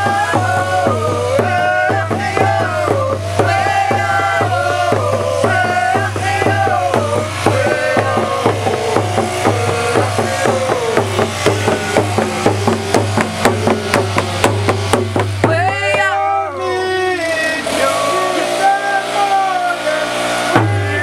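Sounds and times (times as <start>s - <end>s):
man singing: 0.0s - 13.2s
drum beating steady rhythm: 0.0s - 21.0s.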